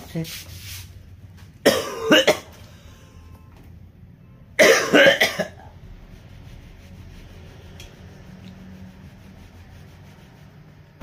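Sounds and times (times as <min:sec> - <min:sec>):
man coughing: 0:01.6 - 0:02.6, 0:04.6 - 0:05.7.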